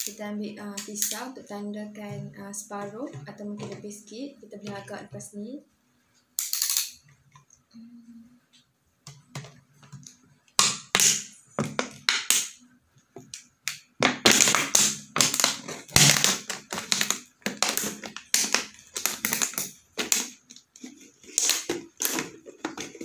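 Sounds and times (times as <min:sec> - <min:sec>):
thin plastic crackling: 0:13.2 - 0:23.0
knife cutting plastic bottle: 0:14.0 - 0:23.0.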